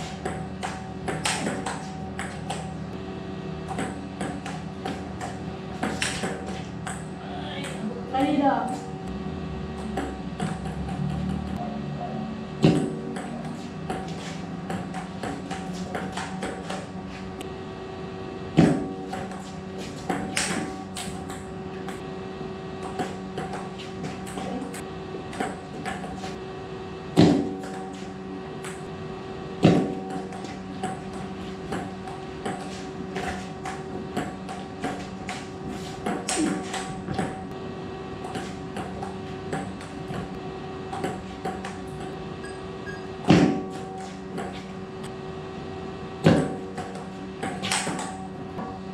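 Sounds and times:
sharp loud ball hits: 0.2 - 2.4, 12.6 - 14.1, 27.2 - 27.8, 29.6 - 31.0, 43.2 - 43.8, 46.2 - 48.2.

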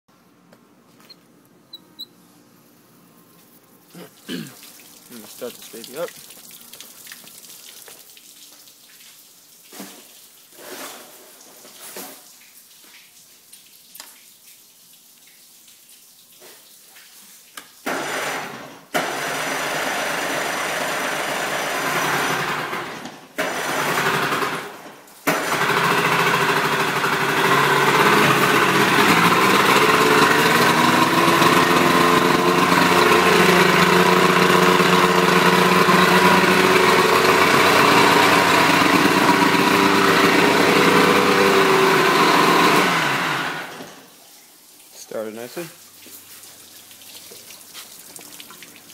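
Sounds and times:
outboard motor: 17.9 - 44.0.

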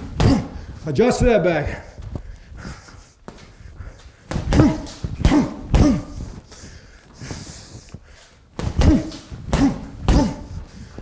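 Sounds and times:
punches thudding on heavy bag: 4.3 - 6.2, 8.6 - 10.4.

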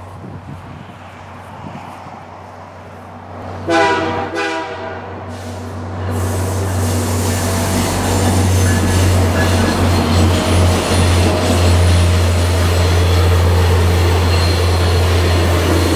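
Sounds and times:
locomotive engine drone: 2.7 - 15.9
locomotive horn blasts: 3.6 - 5.3
train wheel noise: 5.1 - 15.9.

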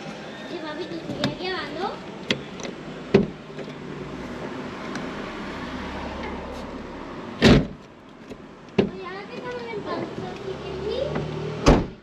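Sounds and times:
car driving slowly past: 3.6 - 7.4.

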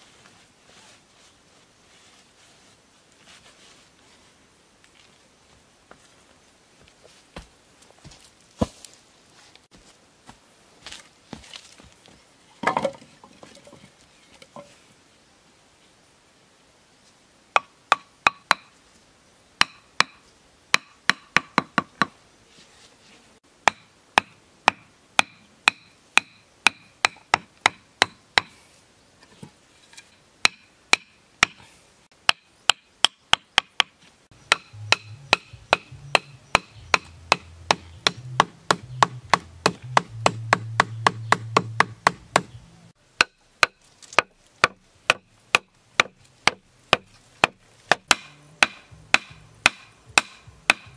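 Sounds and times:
wooden club striking stakes: 32.3 - 42.6, 43.2 - 50.9
low hum: 48.2 - 50.7.

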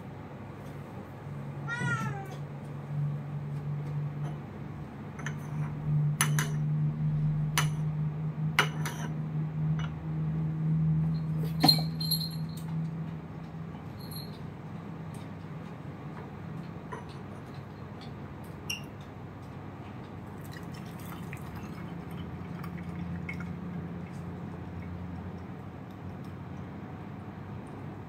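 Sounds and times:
cat meowing: 1.6 - 2.4.

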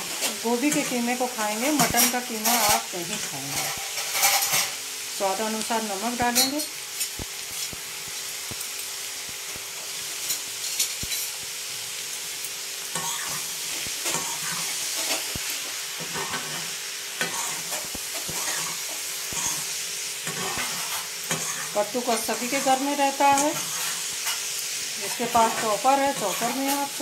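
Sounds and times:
vegetables sizzling in a pan: 0.0 - 27.0
metal spatula scraping a pan: 1.6 - 4.8, 13.0 - 27.0.

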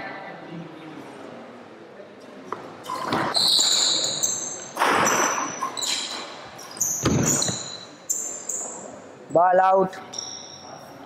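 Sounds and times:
shoe soles squeaking: 2.5 - 9.0, 10.1 - 11.0.

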